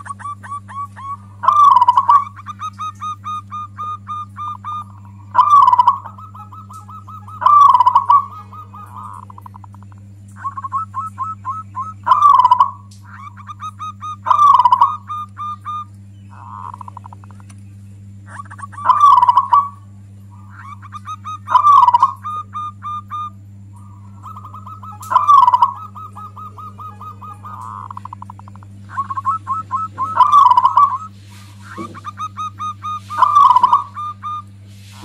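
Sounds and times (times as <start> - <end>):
dove cooing: 0.0 - 35.0
low electrical hum: 0.0 - 35.0.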